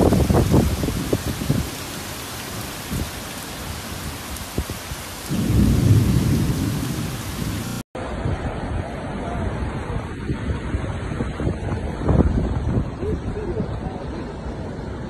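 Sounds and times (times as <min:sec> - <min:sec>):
heavy rain: 0:00.0 - 0:15.0
deep thunder rumble: 0:05.2 - 0:07.8.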